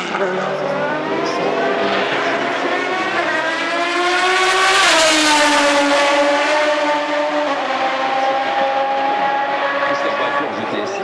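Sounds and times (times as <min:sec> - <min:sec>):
race car engine at full throttle: 0:00.0 - 0:11.0.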